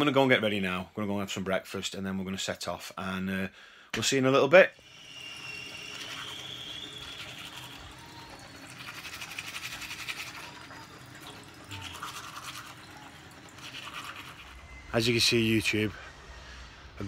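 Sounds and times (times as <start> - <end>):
toothbrush scrubbing teeth: 5.8 - 14.8.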